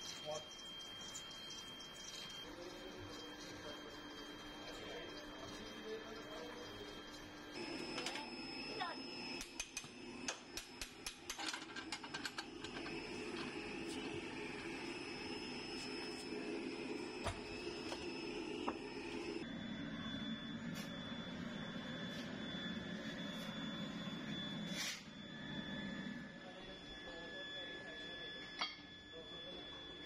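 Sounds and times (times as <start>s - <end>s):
sand mixer running: 7.6s - 19.5s.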